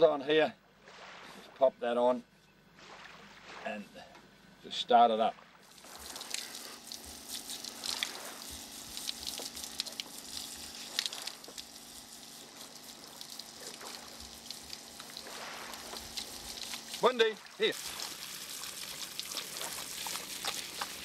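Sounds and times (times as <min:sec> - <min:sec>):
electric pump humming: 0:02.6 - 0:21.0
water spraying and splashing: 0:05.6 - 0:21.0.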